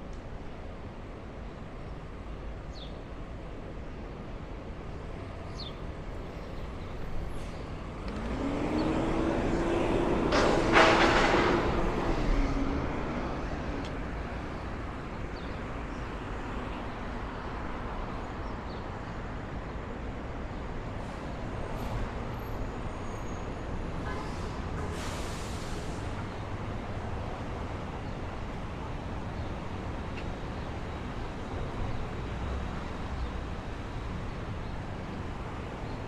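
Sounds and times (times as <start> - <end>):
city street traffic: 0.0 - 36.0
heavy vehicle engine whine: 7.0 - 15.3, 21.0 - 36.0.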